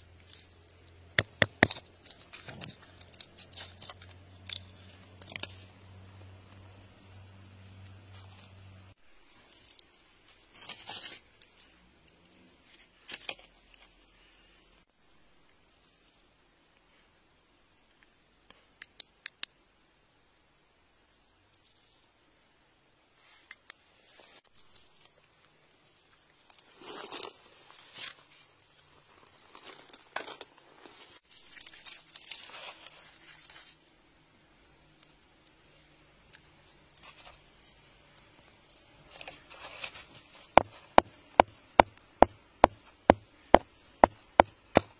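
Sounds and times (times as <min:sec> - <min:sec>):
scratching gritty soil and stone: 0:00.0 - 0:08.6, 0:09.2 - 0:11.8, 0:26.4 - 0:34.0, 0:34.9 - 0:44.9.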